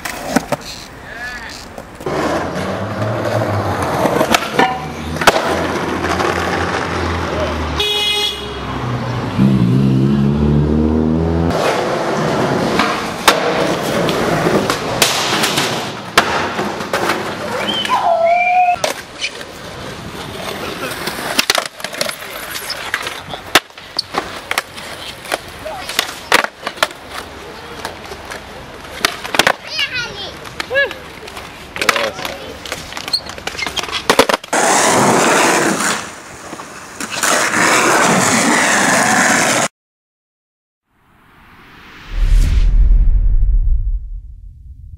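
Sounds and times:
skateboard clicks: 0.0s - 2.1s, 18.8s - 29.7s
skateboard rolling on concrete: 0.0s - 7.8s, 8.7s - 39.7s.

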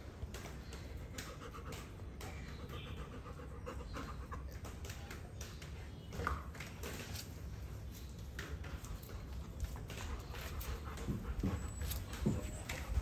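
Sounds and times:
dog panting: 0.8s - 5.0s, 9.3s - 13.0s.

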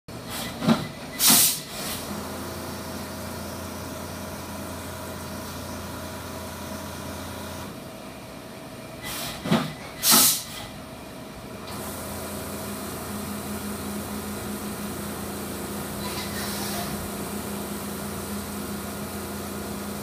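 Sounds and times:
short bursts of hiss: 1.2s - 2.0s, 10.0s - 10.7s.

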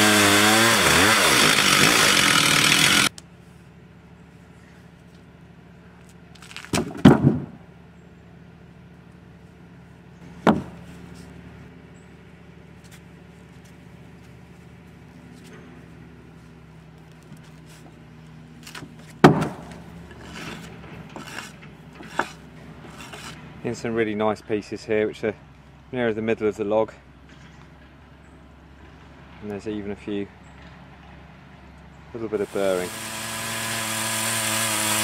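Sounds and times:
chainsaw cutting log: 0.0s - 3.1s, 32.4s - 35.0s
loud sharp knocks: 19.2s - 19.7s.

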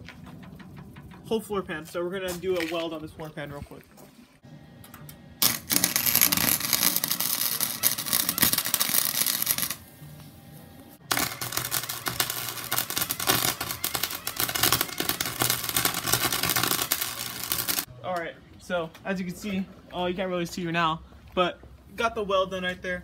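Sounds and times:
welding arc crackling: 5.4s - 9.9s, 11.0s - 17.9s.

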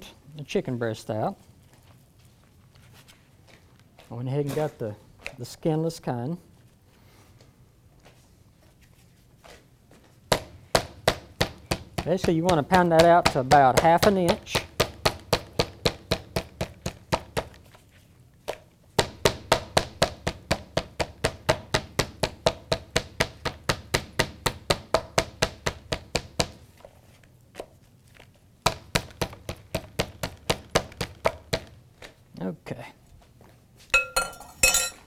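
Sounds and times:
meat tenderizer pounding chicken: 10.3s - 17.6s, 19.0s - 26.6s, 28.6s - 31.8s.

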